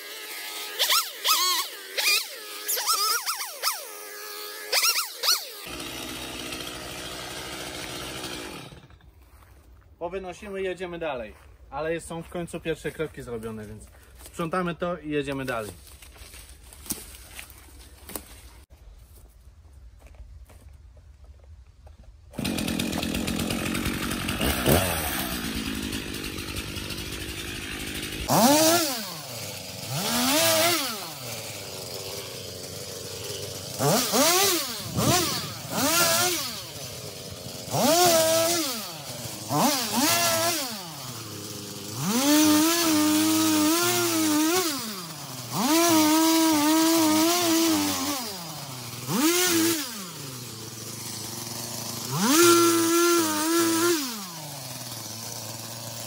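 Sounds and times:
chainsaw cutting wood: 0.0 - 9.5, 22.3 - 56.0.

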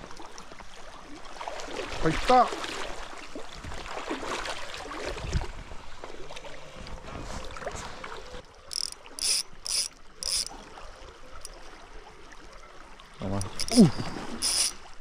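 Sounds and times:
fishing reel drag buzzing: 8.7 - 10.6, 13.4 - 14.9
river water rushing: 13.2 - 15.0.

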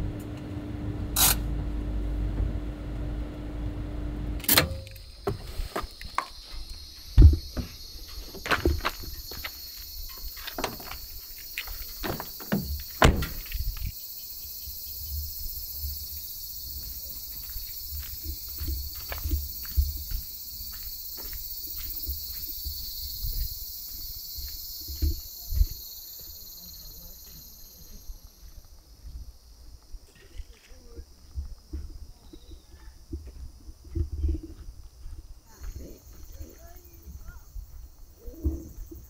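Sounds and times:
insects chirring: 4.4 - 39.0
footsteps crunching on gravel: 5.2 - 13.9, 16.7 - 37.0.

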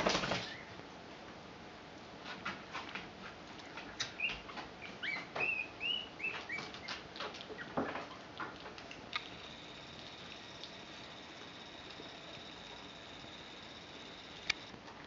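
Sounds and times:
puppies squeaking: 4.2 - 8.3.

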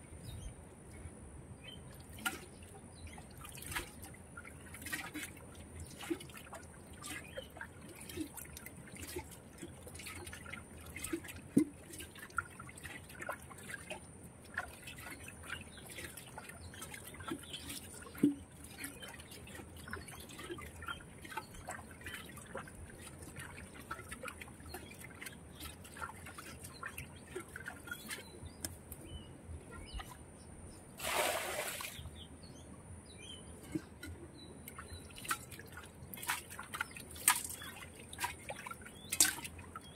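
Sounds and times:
muddy water trickling: 0.0 - 39.9
small wet splashes: 1.7 - 29.2, 31.0 - 32.2, 33.6 - 39.9
metal bowl splashing into water: 31.0 - 32.1, 33.7 - 39.9.

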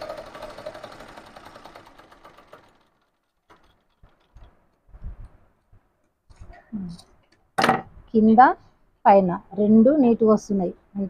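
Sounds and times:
sewing machine stitching: 0.0 - 5.4.

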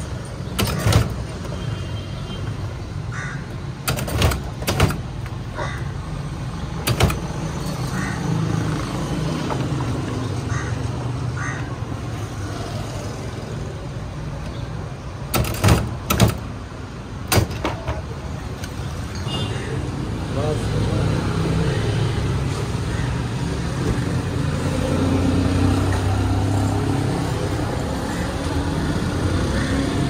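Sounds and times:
traffic rumble: 0.0 - 30.0
sharp knocks and clatters: 3.8 - 5.4, 6.8 - 7.8, 15.3 - 16.5, 17.2 - 18.2.

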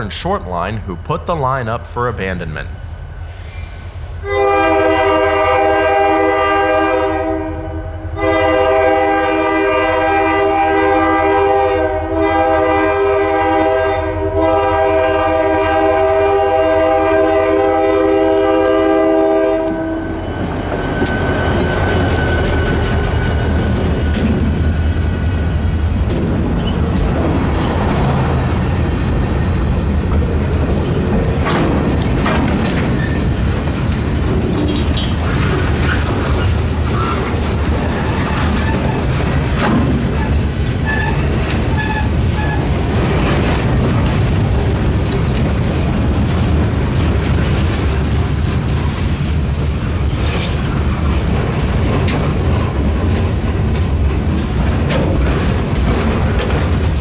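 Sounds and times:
freight train rumbling past: 0.0 - 57.0
wheels clanking on rails: 20.1 - 57.0.

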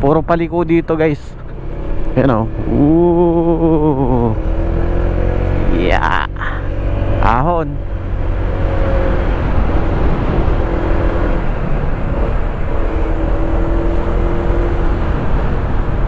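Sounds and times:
wind noise: 6.8 - 16.0.

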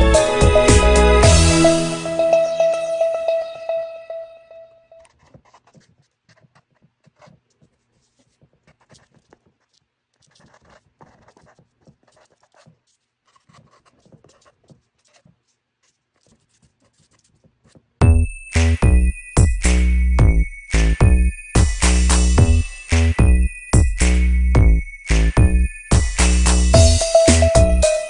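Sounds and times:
marker scratching on paper: 5.0 - 18.0.

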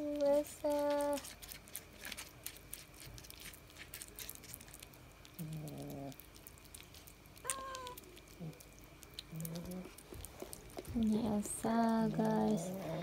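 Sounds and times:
cats eating from plastic bowls: 0.0 - 13.0
cats meowing: 7.4 - 8.6.

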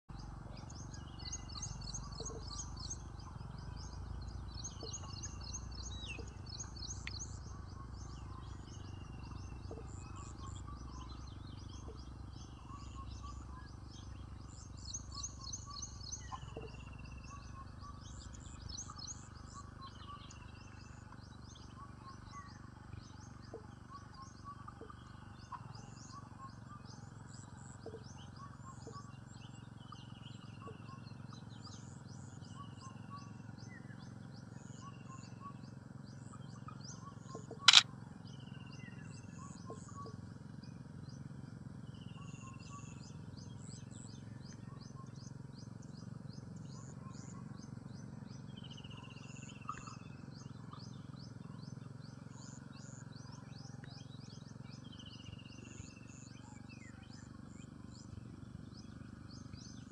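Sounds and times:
birds chirping: 37.4 - 37.8.

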